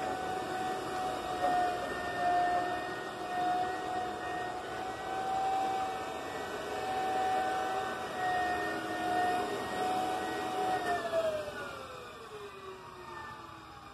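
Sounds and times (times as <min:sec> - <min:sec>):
floor burnisher whining: 0:00.0 - 0:13.9.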